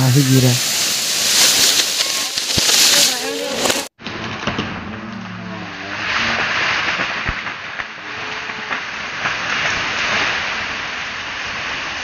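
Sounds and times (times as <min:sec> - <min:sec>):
tree crashing through branches: 0:00.0 - 0:12.0
wood snapping cracks: 0:01.4 - 0:03.0, 0:06.4 - 0:07.9.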